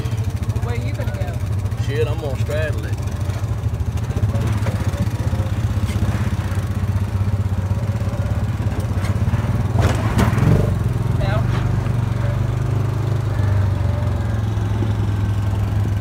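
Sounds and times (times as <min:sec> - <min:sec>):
utility vehicle engine running: 0:00.0 - 0:16.0
vehicle knocks and rattles: 0:02.9 - 0:07.4, 0:08.3 - 0:12.1.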